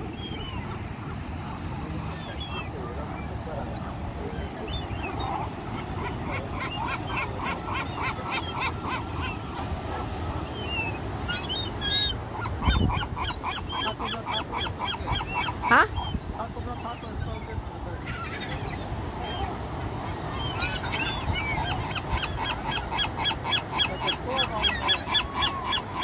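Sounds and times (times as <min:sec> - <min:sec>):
gulls calling: 0:00.0 - 0:26.0
surf washing: 0:00.0 - 0:26.0.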